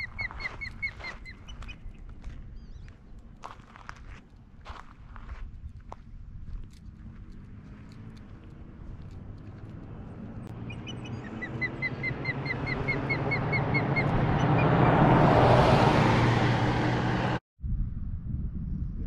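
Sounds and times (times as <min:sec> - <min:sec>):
osprey chirping: 0:00.0 - 0:03.0, 0:10.3 - 0:14.9
vehicle passing on road: 0:00.0 - 0:17.4.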